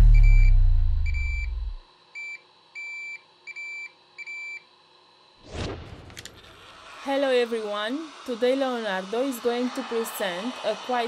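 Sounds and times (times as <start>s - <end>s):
deep boom rumble: 0.0s - 1.8s
whoosh sweeping: 5.4s - 11.0s.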